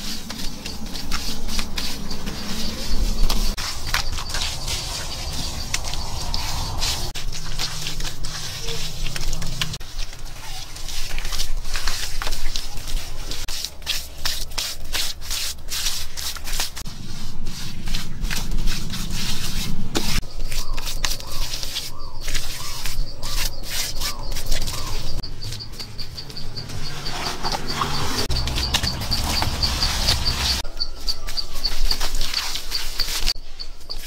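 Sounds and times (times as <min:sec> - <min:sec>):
hands smearing wet mud plaster: 0:00.0 - 0:34.0
high pulsing insect trill: 0:24.2 - 0:31.2.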